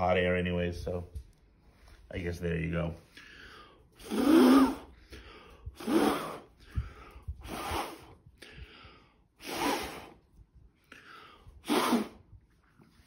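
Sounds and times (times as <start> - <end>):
person blowing through lips: 4.0 - 10.5, 11.3 - 12.5.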